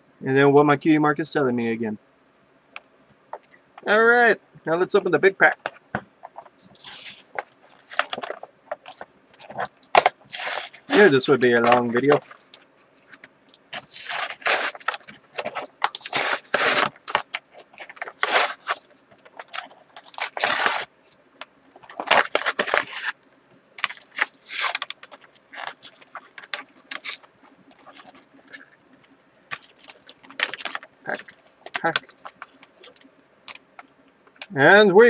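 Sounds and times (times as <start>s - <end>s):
wrapper crinkling and tearing: 6.4s - 21.2s, 21.8s - 23.2s, 23.8s - 28.8s, 29.5s - 34.5s.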